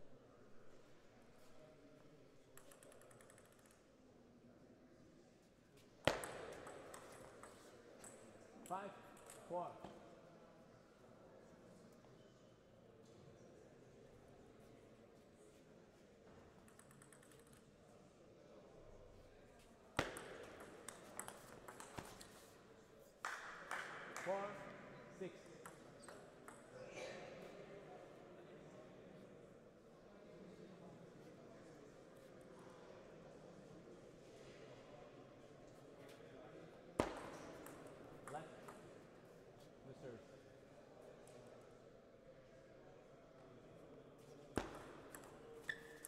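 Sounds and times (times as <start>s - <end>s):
faint hall sound: 0.0s - 46.0s
table tennis ball struck: 6.1s - 8.2s, 20.0s - 22.3s, 37.0s - 38.8s, 44.6s - 46.0s.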